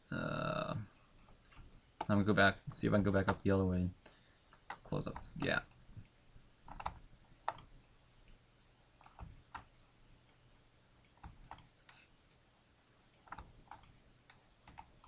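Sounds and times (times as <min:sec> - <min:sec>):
mouse and keyboard clicks: 0:04.5 - 0:08.4, 0:11.0 - 0:12.0, 0:13.2 - 0:15.0.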